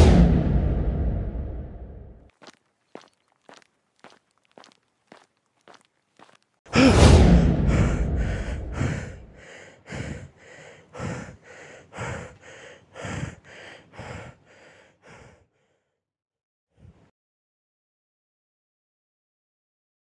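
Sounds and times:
heavy noisy breathing: 6.7s - 15.8s
loud gasp: 6.7s - 15.8s.

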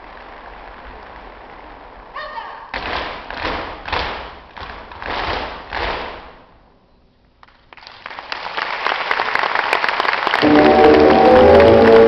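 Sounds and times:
heel stamps on wooden stage: 2.7s - 6.4s
audience applause: 7.7s - 12.0s.

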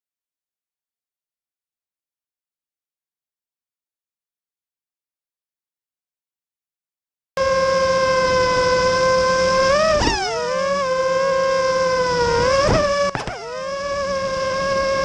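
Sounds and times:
model aircraft motor whine: 7.4s - 15.0s.

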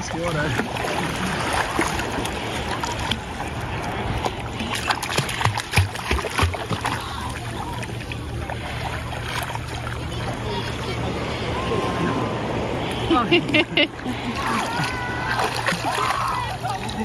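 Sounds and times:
water washing: 0.0s - 17.0s
dog splashing in water: 4.6s - 7.0s, 14.4s - 16.8s.

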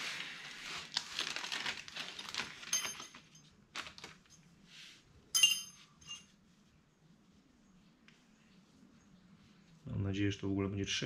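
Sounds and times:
rustling handling noise: 0.0s - 9.9s
metallic clinks: 5.3s - 6.3s.

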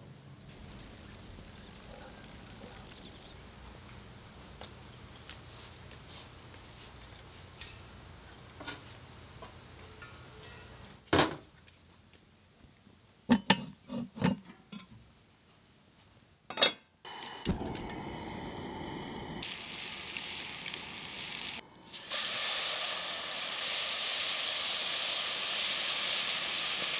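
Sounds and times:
gas burner flame rushing: 17.1s - 26.9s.

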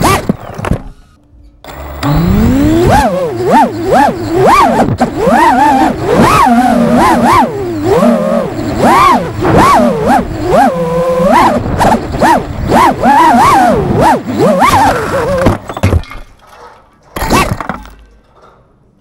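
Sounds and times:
quadcopter motors whining: 1.6s - 15.6s.

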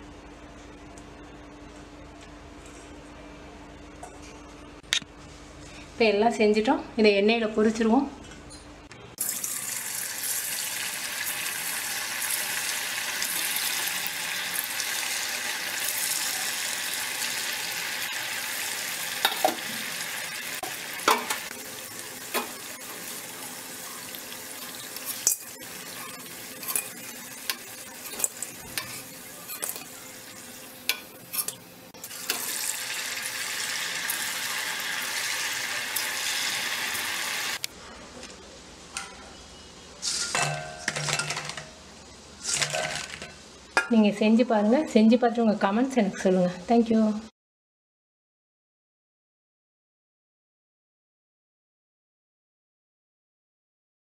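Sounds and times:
oil sizzling and bubbling: 9.2s - 37.7s
metal spoon clinking on pan: 25.1s - 29.9s.

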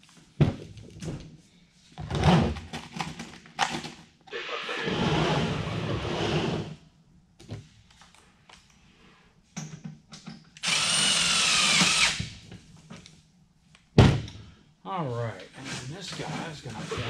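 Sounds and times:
cordless drill whining on metal: 10.6s - 12.3s.

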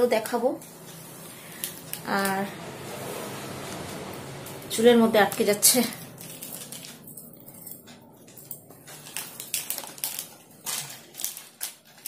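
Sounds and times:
necklace clicking and rustling: 5.2s - 12.0s.

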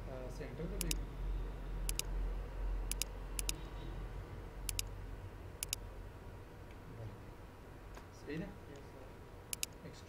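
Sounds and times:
computer mouse clicking: 0.8s - 1.0s, 1.9s - 2.1s, 2.9s - 3.6s, 4.7s - 4.9s, 5.6s - 5.8s, 9.5s - 9.8s.

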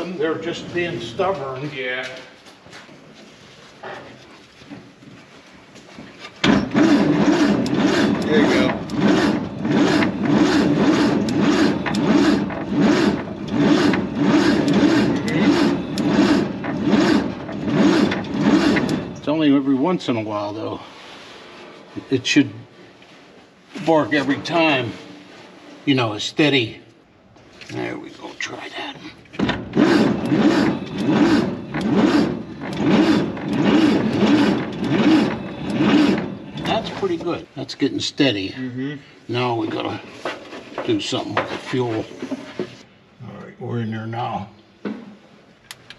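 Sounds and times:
engine cranking on starter: 6.4s - 19.4s, 29.4s - 37.4s.

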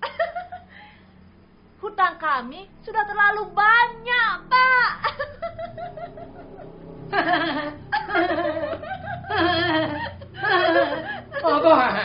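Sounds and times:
people laughing: 5.0s - 12.0s.

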